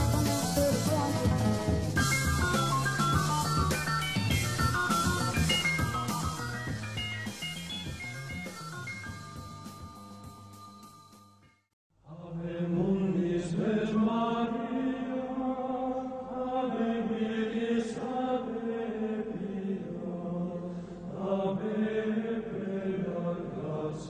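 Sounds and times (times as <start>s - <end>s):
low chanting voices: 12.0s - 24.0s.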